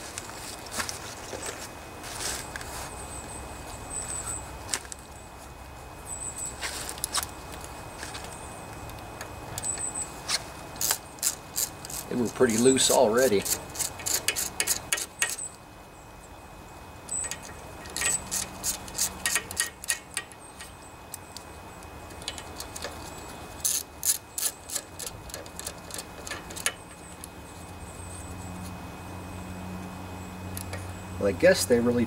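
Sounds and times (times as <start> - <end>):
socket ratchet clicking: 10.8 - 15.5, 17.1 - 20.8, 23.6 - 27.0.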